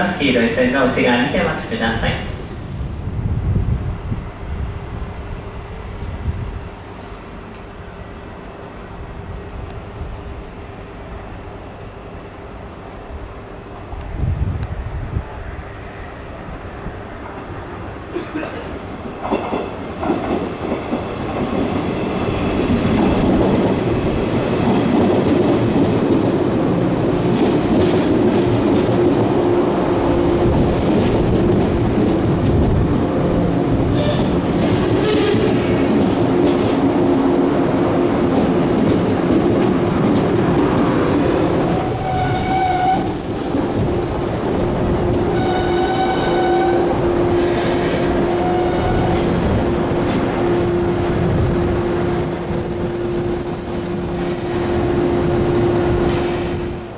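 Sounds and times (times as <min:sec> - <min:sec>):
train pulling into station: 0:00.0 - 0:56.9
train wheels squealing: 0:23.6 - 0:24.3, 0:41.7 - 0:54.8.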